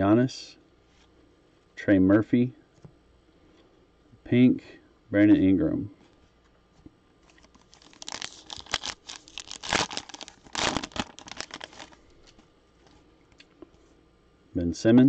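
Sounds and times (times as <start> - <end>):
foil wrapper tearing and crinkling: 7.2 - 12.4.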